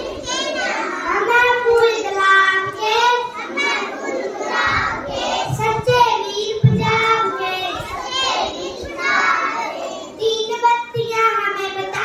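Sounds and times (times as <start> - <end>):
child singing: 0.0 - 12.0
low bumps: 4.6 - 8.9.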